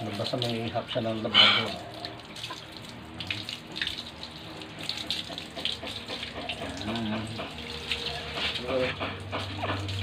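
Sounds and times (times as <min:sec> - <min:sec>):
water dripping: 0:00.0 - 0:10.0
water running and splashing: 0:00.0 - 0:10.0
dog being scrubbed by hand: 0:05.4 - 0:10.0.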